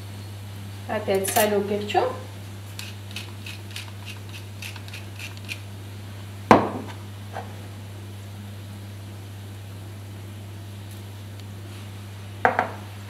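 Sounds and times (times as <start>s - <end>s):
steady low hum: 0.0s - 13.0s
pepper mill grinding clicks: 2.8s - 5.6s.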